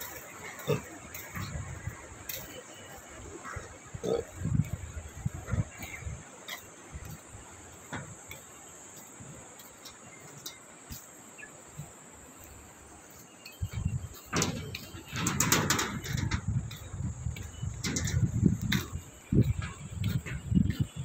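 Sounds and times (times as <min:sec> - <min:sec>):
high insect hiss: 0:00.0 - 0:21.0
faint bird chirps: 0:09.7 - 0:15.1.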